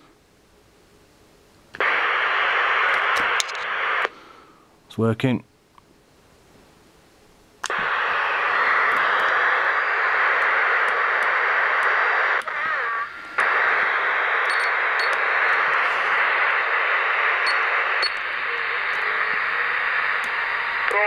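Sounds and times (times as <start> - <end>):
radio receiver static hiss: 1.7 - 4.5, 7.6 - 21.0.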